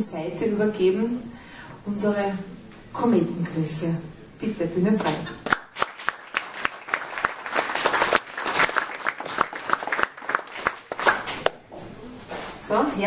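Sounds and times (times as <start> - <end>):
audience applauding: 5.4 - 11.6.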